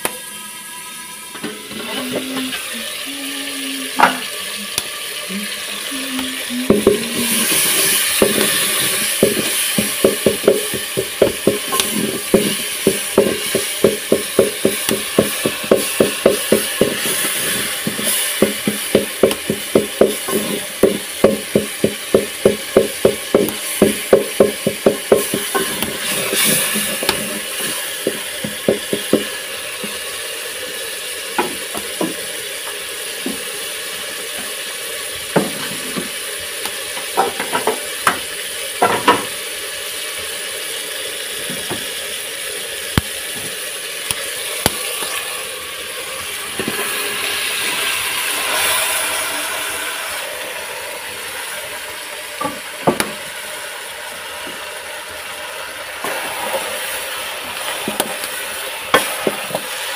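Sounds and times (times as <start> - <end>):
vegetables sizzling in pot: 0.0 - 59.9
spoon knocking against pot: 6.7 - 29.3, 37.2 - 38.2.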